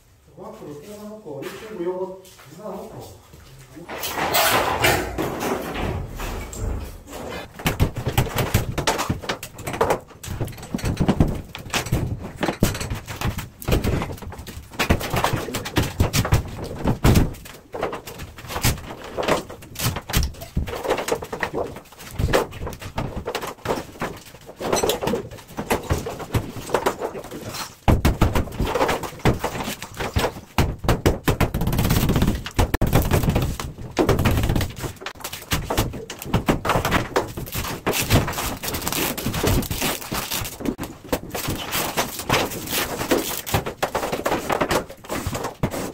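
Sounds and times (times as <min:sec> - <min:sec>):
demolition bangs and knocks: 0:03.9 - 0:27.0, 0:27.8 - 0:45.8.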